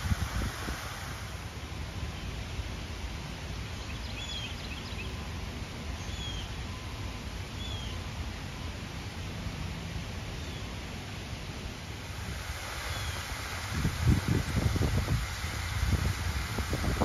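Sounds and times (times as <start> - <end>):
wind on microphone: 0.0 - 1.4, 12.1 - 17.0
faint bird chirps: 3.7 - 8.2
whistled bird notes: 3.8 - 5.3, 6.0 - 6.9, 7.6 - 8.1.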